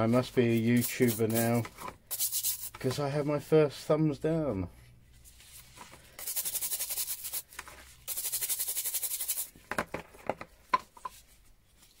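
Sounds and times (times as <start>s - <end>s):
brush scrubbing metal: 0.4s - 2.8s, 6.2s - 7.5s.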